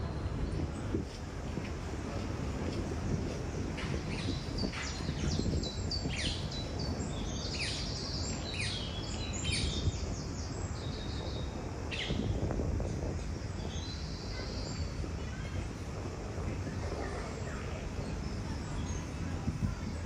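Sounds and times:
songbirds singing and chirping: 2.2 - 15.8, 16.4 - 20.0.

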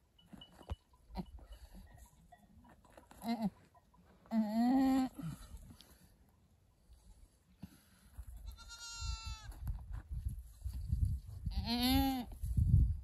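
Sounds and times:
goat bleating: 3.2 - 3.6, 8.4 - 9.5, 11.5 - 12.3.

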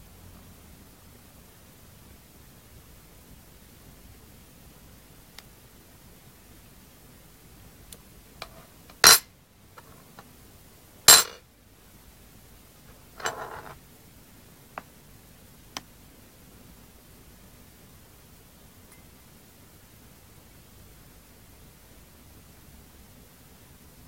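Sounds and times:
spoon rattle being set down: 8.4 - 9.2, 11.1 - 11.4, 13.2 - 13.8
metal spoon clinking: 8.9 - 9.2, 11.1 - 11.4, 13.2 - 13.8.

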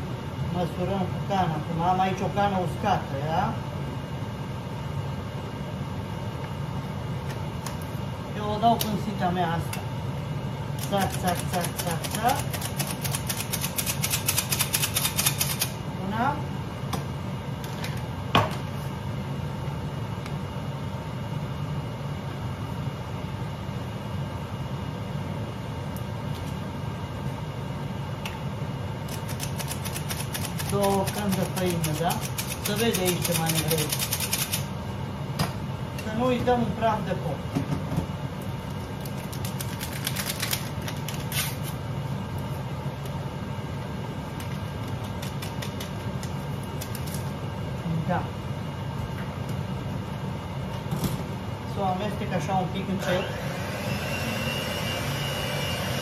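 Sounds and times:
steady low hum: 0.0 - 56.0
paper sachet tearing and rustling: 39.0 - 41.8.

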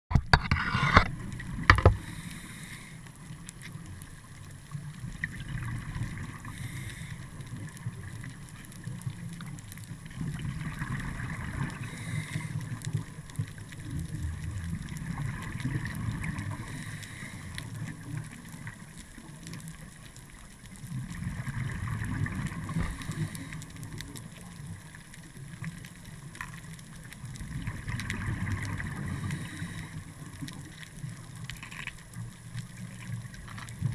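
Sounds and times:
scuba regulator breathing underwater: 1.8 - 3.3, 6.3 - 7.5, 11.5 - 12.8, 16.2 - 18.0, 22.5 - 23.9, 28.8 - 30.3.

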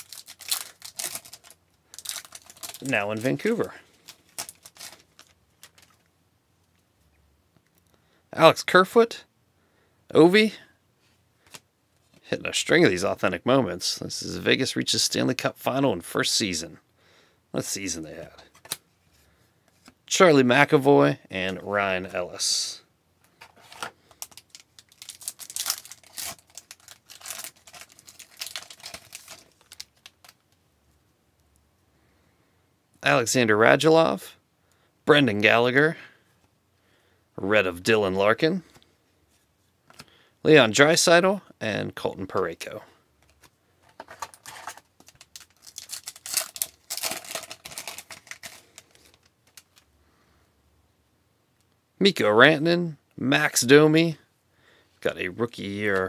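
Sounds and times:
wrapper crinkling and tearing: 0.0 - 6.0, 24.2 - 30.5, 44.0 - 49.9.

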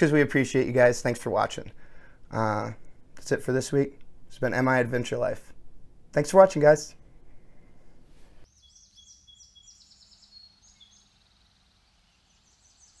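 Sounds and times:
faint birdsong chirps: 8.4 - 13.0.

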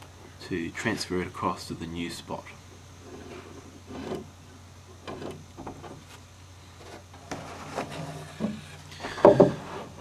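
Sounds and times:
wood knocks and clicks: 8.4 - 9.7.

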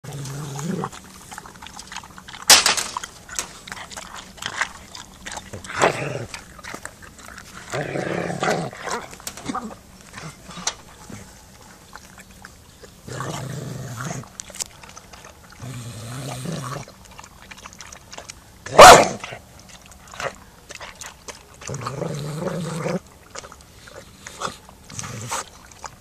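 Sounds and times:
dog growling low: 0.0 - 2.4, 3.6 - 11.4, 13.0 - 14.4, 15.2 - 17.0, 21.6 - 23.1, 23.8 - 25.8
sharp dog bark: 18.8 - 19.2.

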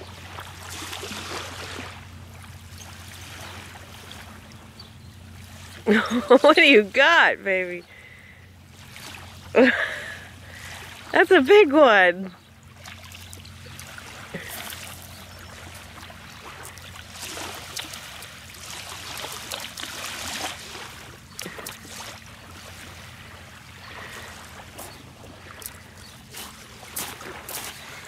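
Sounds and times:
fish splashing in shallows: 0.0 - 4.6, 8.0 - 11.2, 12.6 - 28.0
waves washing on pebbles: 13.7 - 28.0.

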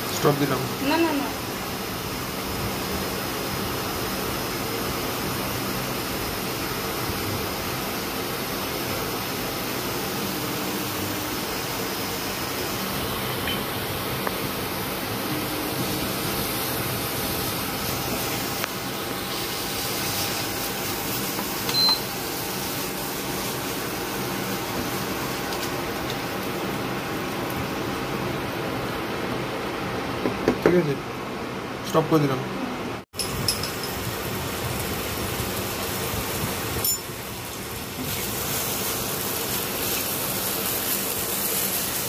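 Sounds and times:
short high beep: 21.7 - 22.1.

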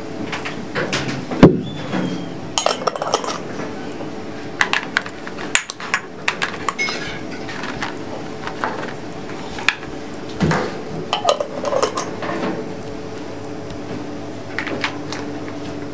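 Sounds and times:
glass jars clinking: 2.6 - 3.4, 6.7 - 7.6, 11.1 - 12.1.

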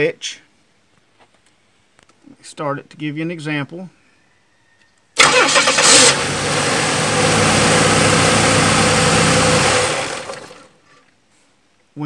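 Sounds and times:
starter cranking: 5.2 - 6.3
car engine idling: 5.2 - 10.8.

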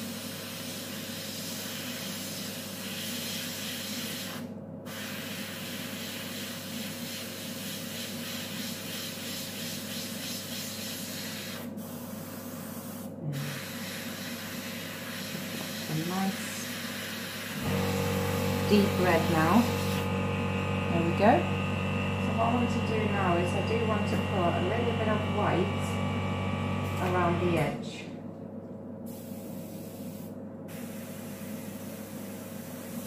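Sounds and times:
airbrush hissing: 0.0 - 20.1, 29.1 - 33.0.

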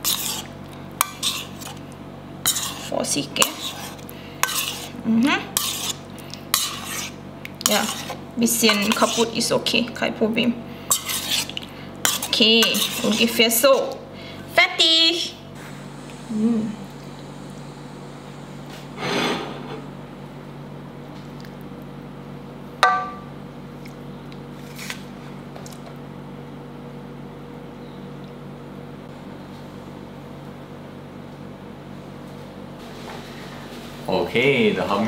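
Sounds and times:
cookware scraping clatter: 7.7 - 9.4, 12.1 - 13.4.

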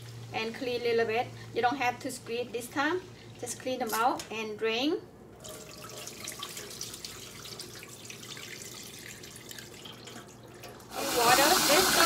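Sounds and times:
water trickling into sink drain: 5.4 - 12.0.

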